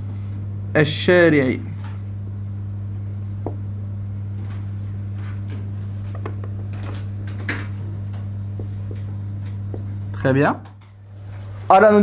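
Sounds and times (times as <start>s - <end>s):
electrical mains hum: 0.0s - 12.0s
faint taps and rustles: 4.4s - 6.8s.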